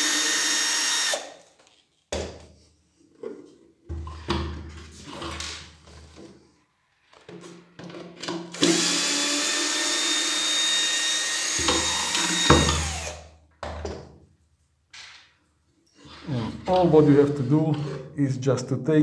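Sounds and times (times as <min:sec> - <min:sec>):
cordless drill motor whine: 0:00.0 - 0:01.3, 0:08.6 - 0:13.2.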